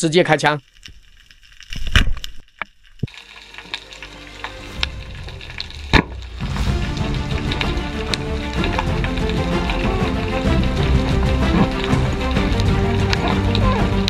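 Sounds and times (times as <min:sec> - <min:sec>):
background music: 0:03.1 - 0:14.0
underwater crackling: 0:07.2 - 0:14.0.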